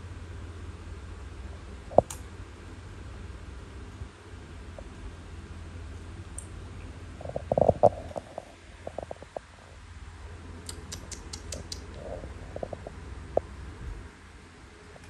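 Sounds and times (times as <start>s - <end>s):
light sharp clicks: 10.6s - 12.0s.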